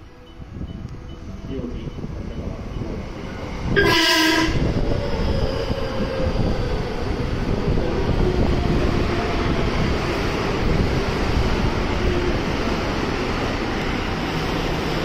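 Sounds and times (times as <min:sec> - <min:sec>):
train cars rumbling past: 0:00.0 - 0:15.0
electric train horn blast: 0:03.8 - 0:04.7.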